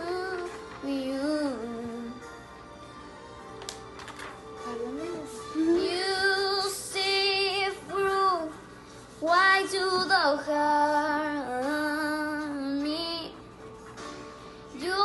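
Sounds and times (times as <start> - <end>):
girl singing: 0.0 - 2.3, 4.7 - 13.5, 14.7 - 15.0.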